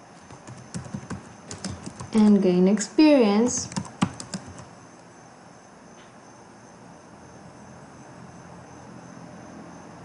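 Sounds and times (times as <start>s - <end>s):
computer keyboard clicks: 0.3s - 2.4s, 3.5s - 4.7s.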